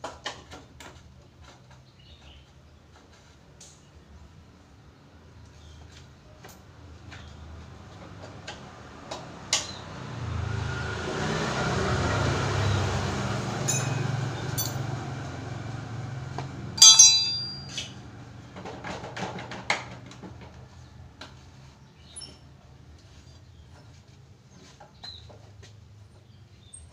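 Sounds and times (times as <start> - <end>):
metal tools clinking: 13.6 - 14.9, 16.8 - 18.0
ringing metal clank: 13.6 - 14.9, 16.8 - 18.0.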